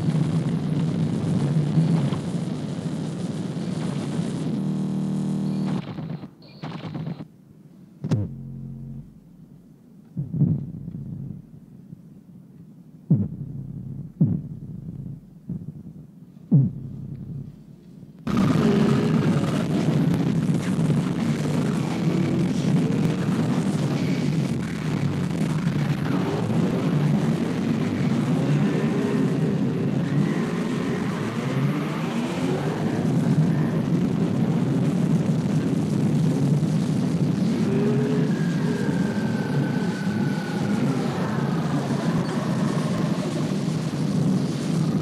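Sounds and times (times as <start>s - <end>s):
low hum: 0.0s - 45.0s
wall of distorted noise: 0.0s - 45.0s
deep thud falling in pitch: 8.0s - 9.2s, 10.2s - 11.5s, 13.1s - 15.9s, 16.5s - 17.5s.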